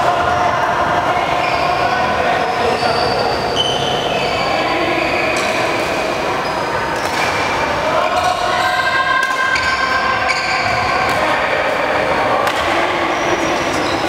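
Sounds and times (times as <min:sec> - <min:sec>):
sports hall din: 0:00.0 - 0:14.0
racket hitting shuttlecock: 0:07.0 - 0:07.6, 0:12.4 - 0:12.9.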